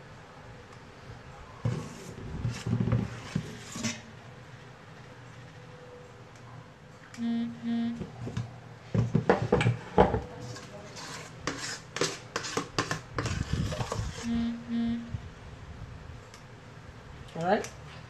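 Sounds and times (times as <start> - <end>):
short electronic oven beeps: 7.2 - 8.0, 14.3 - 15.2
metal spoon scraping bowl: 10.4 - 14.5.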